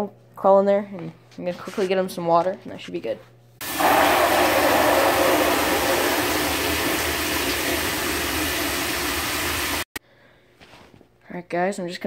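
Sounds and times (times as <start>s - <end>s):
shower spraying into bucket: 3.6s - 9.9s.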